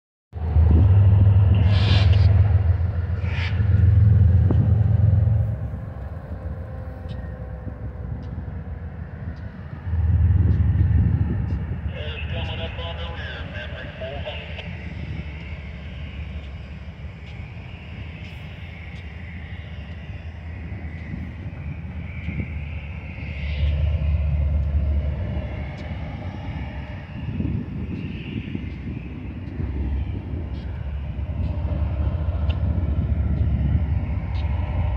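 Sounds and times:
distant diesel locomotives rumbling: 0.3 - 34.9
faint ticks: 8.1 - 8.5.

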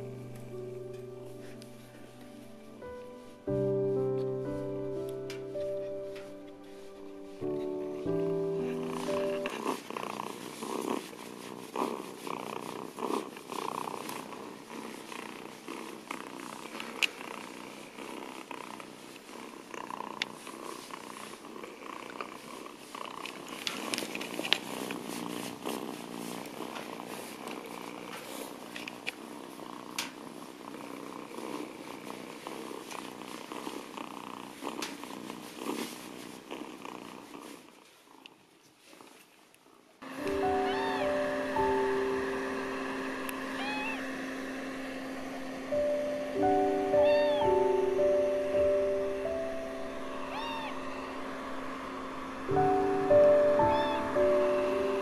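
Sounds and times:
kitten purring: 0.0 - 3.3, 4.9 - 42.5, 43.2 - 44.4, 45.6 - 55.0
towel rustling: 0.0 - 16.7.

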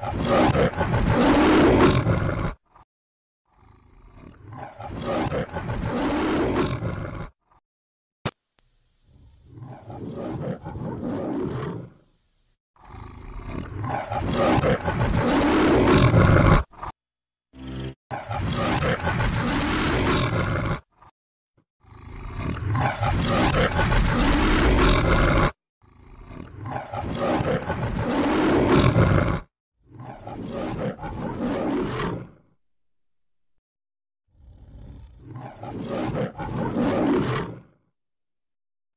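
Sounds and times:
lion roaring: 0.0 - 2.8, 3.5 - 7.4, 9.5 - 12.0, 12.8 - 16.9, 18.1 - 20.9, 21.9 - 32.4, 34.4 - 37.8.

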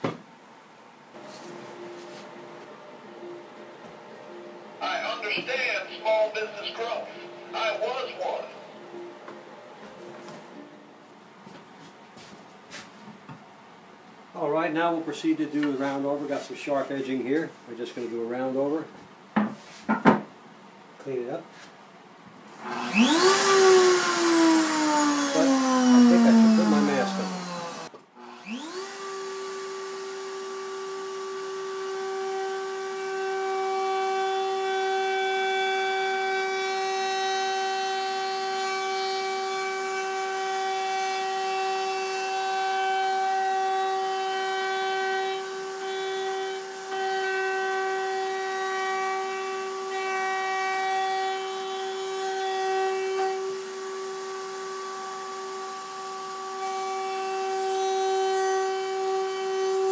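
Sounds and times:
router whining while cutting wood: 22.6 - 59.9.

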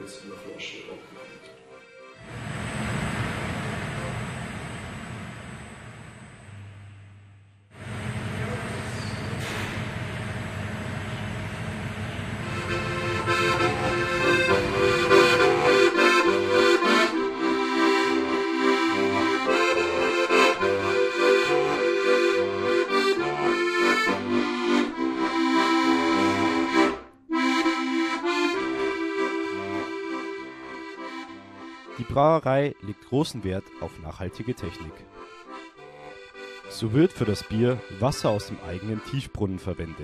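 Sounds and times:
button accordion playing: 0.0 - 2.4, 12.4 - 40.0.

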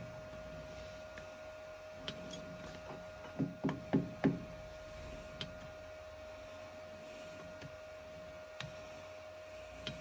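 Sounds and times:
steady faint hum: 0.0 - 10.0.

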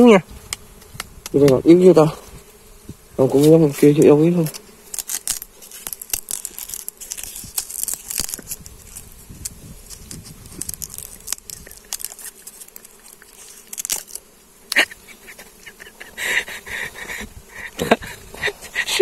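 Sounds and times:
bees buzzing: 0.0 - 19.0
twigs rustling: 3.2 - 14.9
pruning shears clicking: 3.4 - 15.0.

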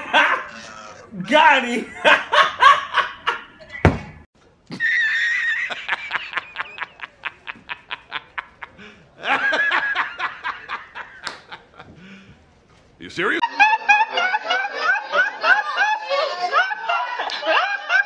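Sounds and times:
man laughing hard: 0.0 - 0.5, 1.8 - 3.4, 4.7 - 11.1.

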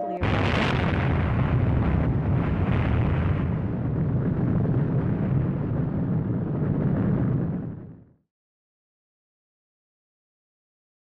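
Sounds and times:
explosion rumble with rushing hiss: 0.2 - 8.2.

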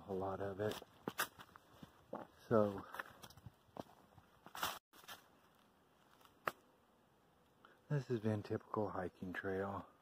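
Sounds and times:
footsteps on dry leaves: 0.2 - 6.6.

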